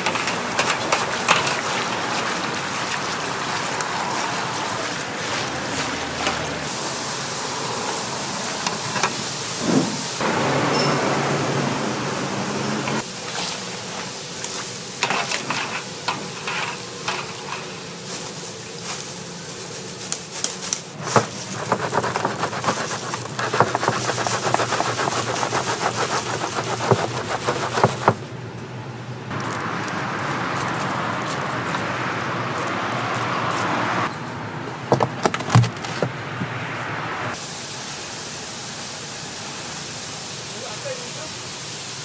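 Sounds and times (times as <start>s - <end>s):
wire skimmer scraping and knocking: 0.0s - 6.7s, 14.5s - 18.4s, 20.4s - 28.3s
hot oil sizzling and crackling: 0.0s - 28.2s, 37.3s - 42.0s.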